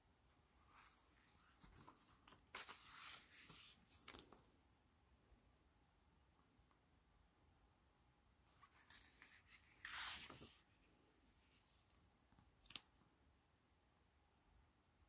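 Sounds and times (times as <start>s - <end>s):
book page rustling: 0.6s - 4.5s, 8.5s - 10.8s.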